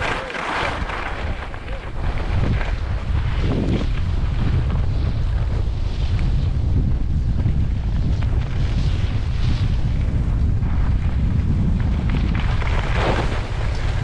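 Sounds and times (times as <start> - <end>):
skis hissing over snow: 0.0 - 6.1
skis scraping on snow: 0.0 - 14.0
wind buffeting microphone: 0.0 - 14.0.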